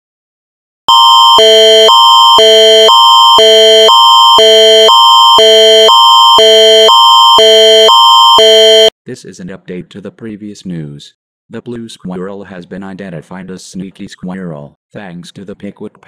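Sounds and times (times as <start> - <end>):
emergency alert tone: 0.9 - 8.9.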